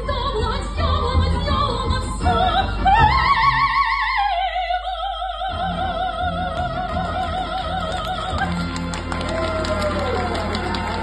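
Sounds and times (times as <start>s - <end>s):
soprano singing: 0.0s - 9.2s
orchestral accompaniment: 5.9s - 11.0s.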